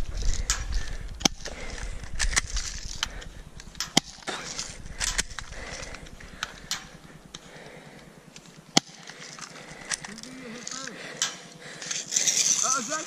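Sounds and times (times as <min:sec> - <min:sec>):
low microphone rumble: 0:00.0 - 0:08.6.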